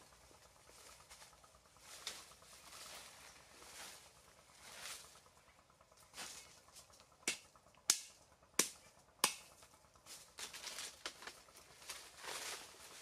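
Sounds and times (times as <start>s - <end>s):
rustling in dry leaves: 0.0s - 6.9s, 10.0s - 13.0s
bamboo sticks clicking: 7.0s - 9.7s, 10.4s - 12.0s.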